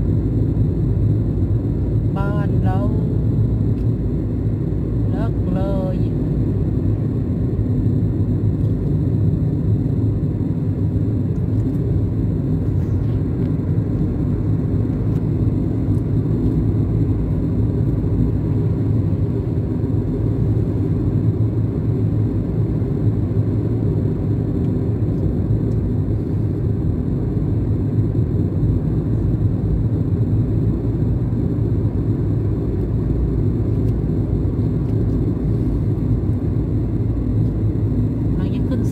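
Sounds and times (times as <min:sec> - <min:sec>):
car engine and tyre rumble: 0:11.2 - 0:38.9.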